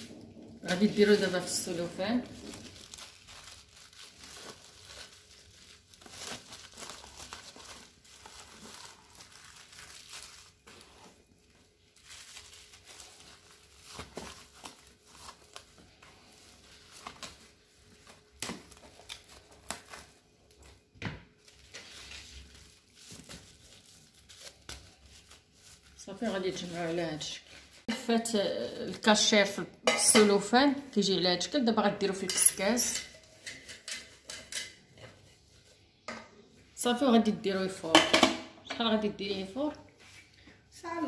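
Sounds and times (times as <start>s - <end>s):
plastic wrap crinkling: 0.0s - 29.6s.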